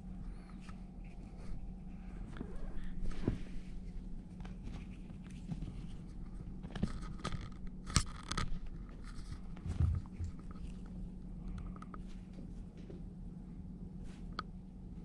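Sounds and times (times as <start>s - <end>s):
low steady hum: 0.0s - 15.0s
kitten claws scratching on carpet: 3.8s - 11.0s.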